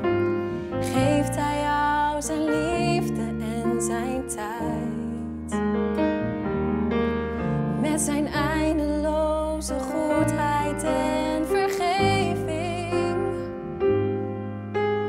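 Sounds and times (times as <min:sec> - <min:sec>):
grand piano: 0:00.0 - 0:15.0
woman singing with vibrato: 0:00.8 - 0:05.5, 0:07.8 - 0:13.5.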